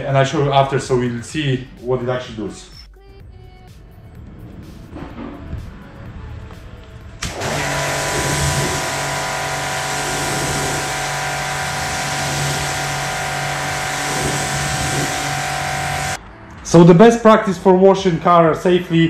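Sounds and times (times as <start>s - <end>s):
pressure washer pump humming: 7.2s - 16.2s
water jet spraying on car: 7.2s - 16.2s.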